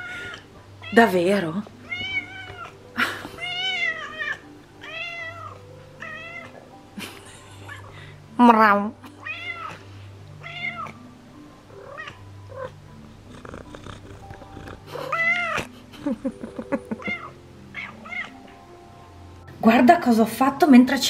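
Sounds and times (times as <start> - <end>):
faint background music: 0.0 - 21.0
cat meowing: 1.8 - 2.8, 3.4 - 6.6, 9.2 - 9.8, 10.4 - 11.0, 11.8 - 12.8, 13.4 - 15.7, 17.0 - 18.4.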